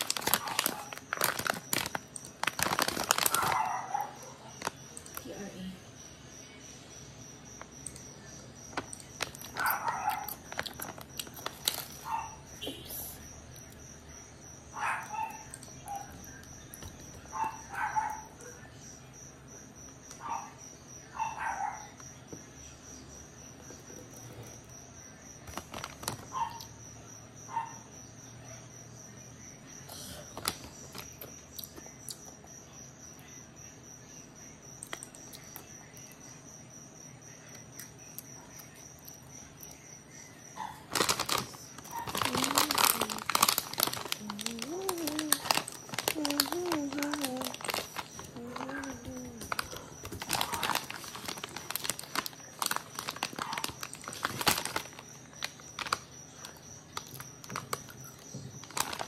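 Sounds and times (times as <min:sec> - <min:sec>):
foil snack bag crinkling: 0:00.0 - 0:05.2, 0:08.7 - 0:12.3, 0:25.4 - 0:26.3, 0:40.9 - 0:59.0
soft chewing crunches: 0:00.0 - 0:05.2, 0:08.7 - 0:12.4, 0:40.6 - 0:59.0.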